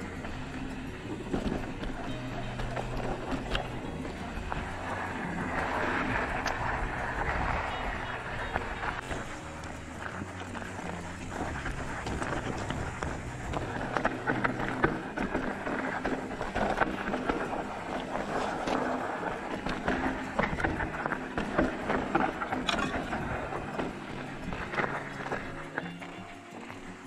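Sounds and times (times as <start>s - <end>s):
bike rattling: 0.0s - 27.0s
tyres crunching on gravel: 0.0s - 27.0s.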